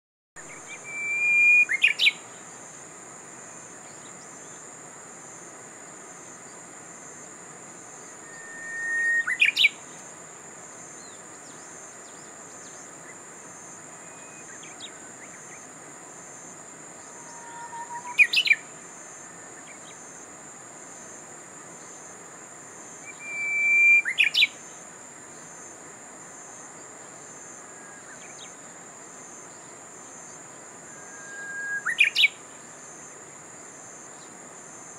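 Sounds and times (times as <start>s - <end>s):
bird singing whistle and flourish: 0.4s - 2.2s, 8.2s - 9.8s, 14.0s - 15.6s, 17.1s - 18.7s, 23.0s - 24.6s, 30.9s - 32.4s.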